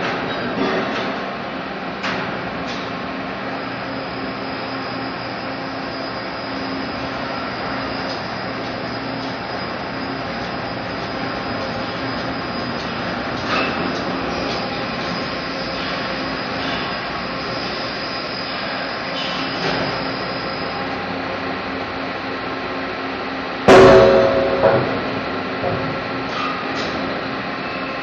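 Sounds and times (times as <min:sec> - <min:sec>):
factory hum and hiss: 0:00.0 - 0:28.0
loud ringing steel clang: 0:23.7 - 0:26.7.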